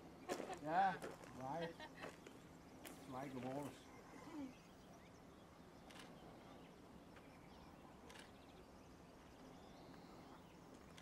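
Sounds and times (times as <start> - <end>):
faint camera shutter clicks: 5.8 - 6.2, 8.0 - 8.5.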